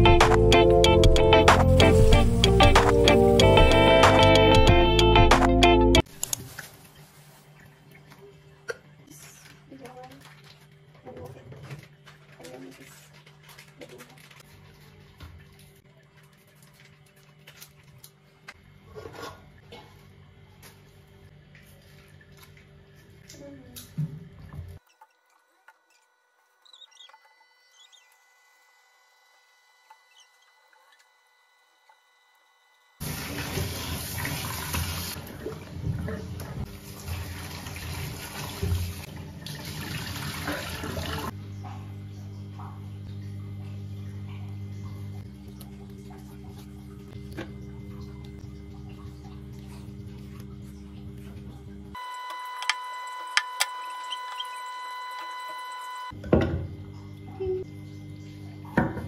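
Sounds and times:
tap water running into sink: 0:33.0 - 0:41.3.

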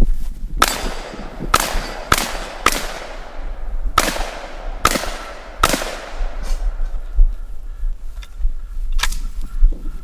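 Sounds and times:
pistol shots: 0:00.6 - 0:06.8.

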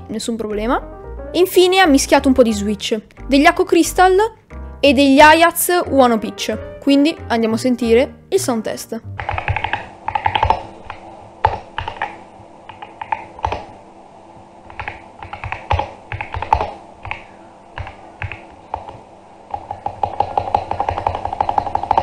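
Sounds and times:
mechanical keyboard typing: 0:09.2 - 0:13.7, 0:14.7 - 0:22.0.

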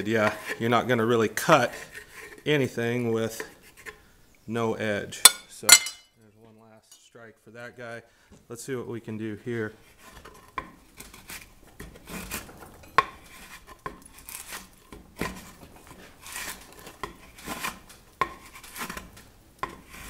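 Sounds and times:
trowel scraping wood: 0:00.0 - 0:04.0, 0:09.4 - 0:20.0.

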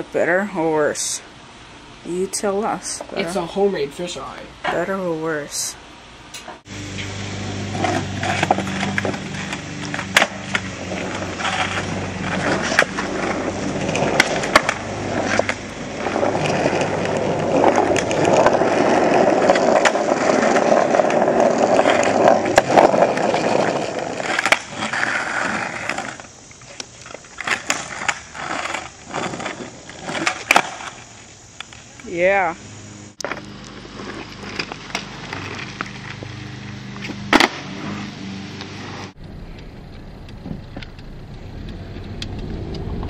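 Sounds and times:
skateboard wheels rolling on asphalt: 0:06.6 - 0:43.0
skateboard knocking on ground: 0:07.8 - 0:26.2, 0:37.0 - 0:37.6.

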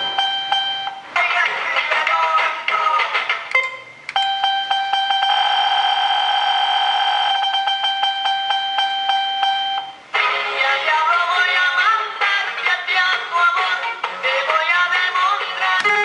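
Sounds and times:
electronic beeps: 0:00.0 - 0:01.0, 0:03.5 - 0:10.0.

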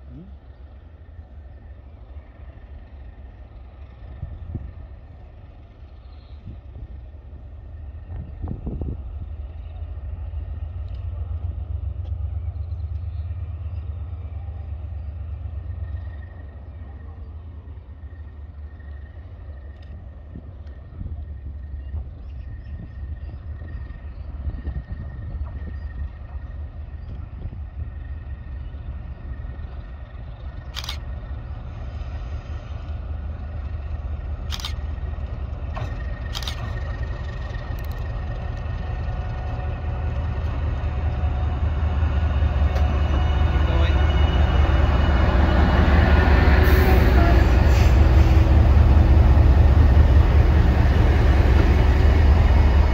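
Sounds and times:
locomotive engine rumble: 0:00.0 - 0:52.9.

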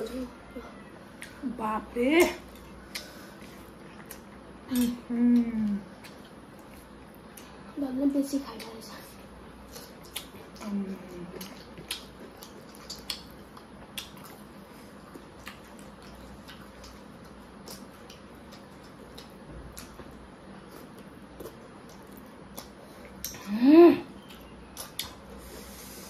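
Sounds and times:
wet chewing and lip smacks: 0:02.4 - 0:07.6, 0:08.5 - 0:08.9, 0:09.6 - 0:10.7, 0:11.3 - 0:23.4, 0:24.2 - 0:25.7.

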